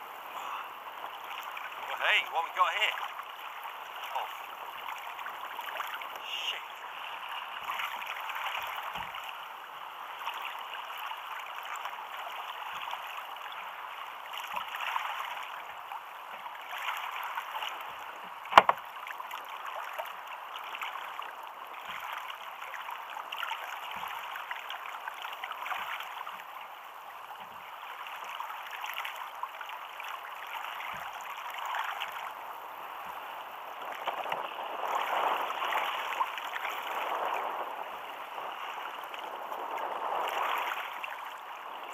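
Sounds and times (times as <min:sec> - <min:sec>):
water slapping against kayak hull: 0:00.9 - 0:06.2, 0:07.0 - 0:09.4, 0:16.3 - 0:21.2, 0:21.8 - 0:26.2, 0:30.4 - 0:41.9.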